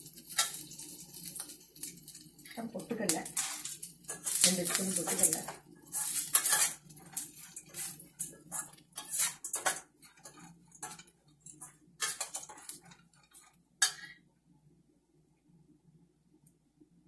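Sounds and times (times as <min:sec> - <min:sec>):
metal spoon scraping a pan: 0:00.0 - 0:14.2
spoon clanking in pan: 0:03.2 - 0:12.9, 0:13.8 - 0:14.2.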